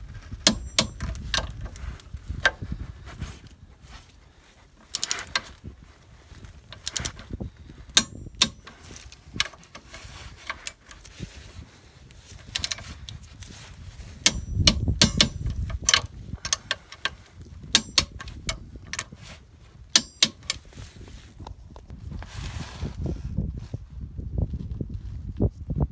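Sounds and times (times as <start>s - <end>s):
ratchet wrench clicking on nuts: 0.4s - 1.5s, 8.0s - 11.0s, 14.2s - 19.2s, 19.9s - 20.7s.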